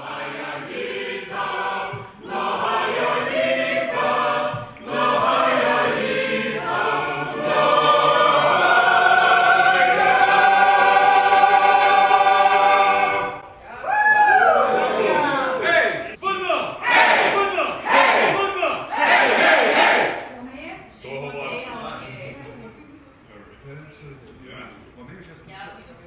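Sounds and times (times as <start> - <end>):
folk choir singing: 0.0 - 13.6, 16.8 - 20.3.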